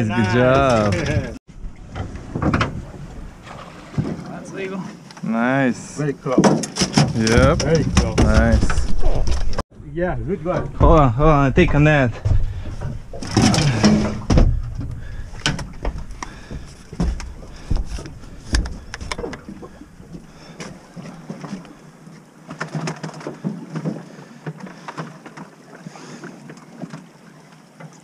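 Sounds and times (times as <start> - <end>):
fishing gear knocking and clattering: 6.3 - 9.6, 10.5 - 21.6, 22.5 - 25.1.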